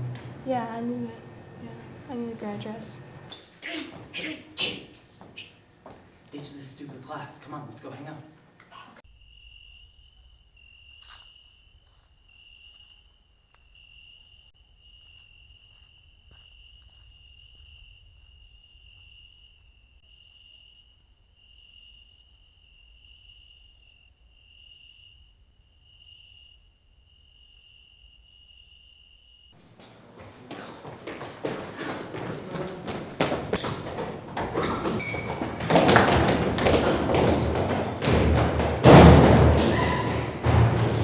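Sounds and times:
crickets chirping: 9.0 - 29.8.

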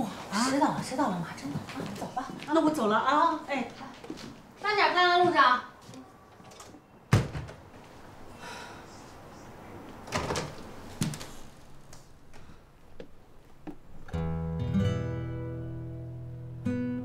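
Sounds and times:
door banging shut: 6.6 - 7.6, 10.1 - 11.2
acoustic guitar background music: 14.1 - 17.0.

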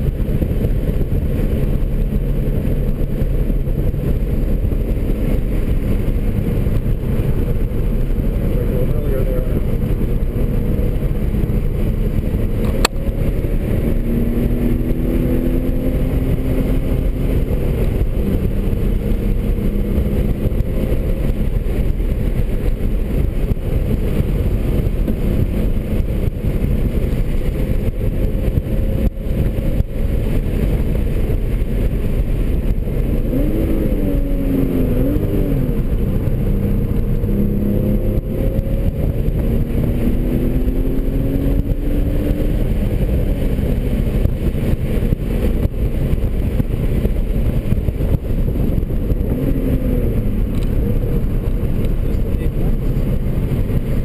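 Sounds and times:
car engine revving: 0.0 - 54.0
road noise drone: 0.0 - 54.0.

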